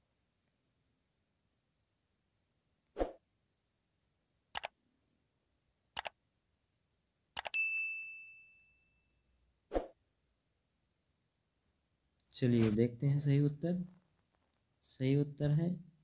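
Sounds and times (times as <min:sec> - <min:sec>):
mouse clicks: 0:06.0 - 0:06.2, 0:07.4 - 0:07.6
notification bell ding: 0:07.6 - 0:09.0.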